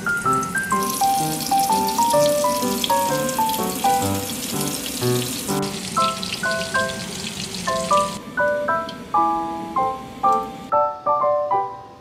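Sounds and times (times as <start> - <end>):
food sizzling in oil: 0.0 - 8.2
light background music: 0.0 - 12.0.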